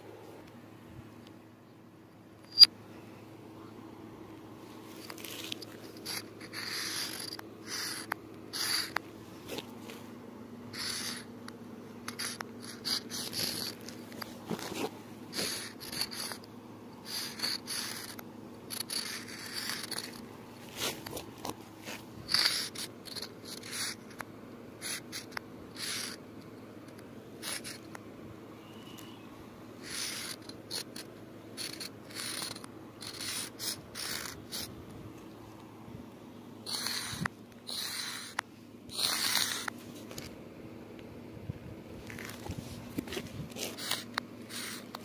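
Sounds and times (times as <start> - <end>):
faint steady hum: 0.0 - 45.0
chalk scraping on pavement: 5.0 - 10.0, 10.7 - 11.3, 12.1 - 16.5, 17.1 - 24.2, 24.8 - 26.2, 27.4 - 27.9, 29.8 - 34.7, 36.7 - 40.3, 42.1 - 45.0.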